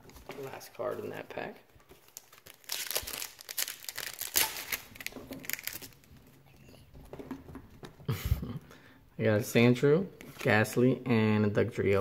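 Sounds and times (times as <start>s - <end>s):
foil wrapper crinkling and tearing: 2.0s - 6.2s.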